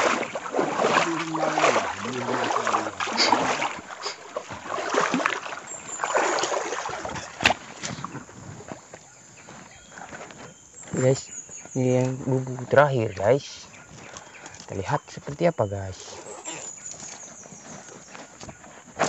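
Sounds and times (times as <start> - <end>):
water sloshing and splashing: 0.0 - 15.2
branches and leaves rustling: 0.0 - 19.0.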